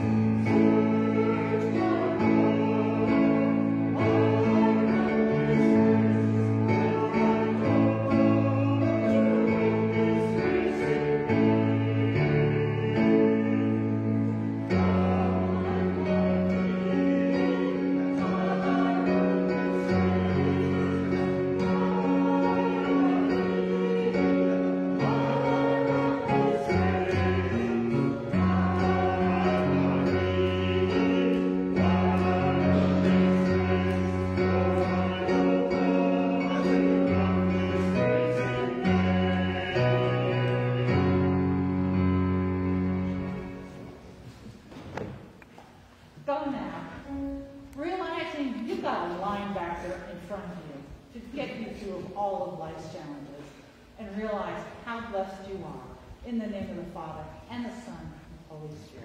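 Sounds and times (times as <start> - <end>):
hymn sung with accompaniment: 0.0 - 43.7.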